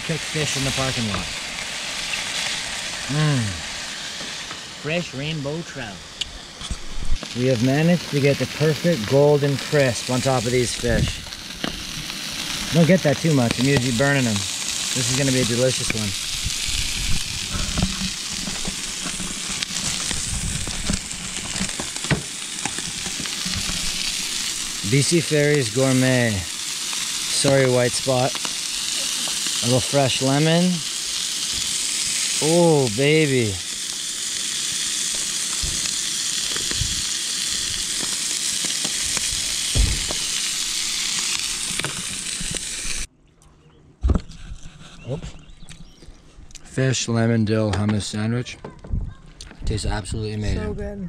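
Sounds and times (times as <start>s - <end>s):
fish fillets sizzling in a pan: 0.0s - 43.1s
sharp crack: 17.4s - 34.1s, 35.0s - 42.7s.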